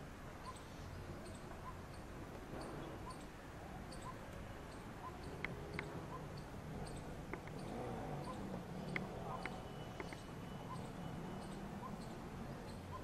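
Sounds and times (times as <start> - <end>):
faint bird calls: 0.4 - 13.0
sharp clicks: 5.2 - 6.0, 7.3 - 10.3.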